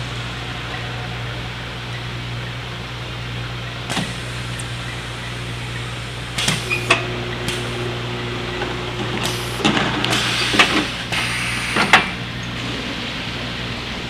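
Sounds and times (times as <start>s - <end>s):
bottle-filling machine humming: 0.0s - 14.0s
hiss: 9.2s - 12.3s.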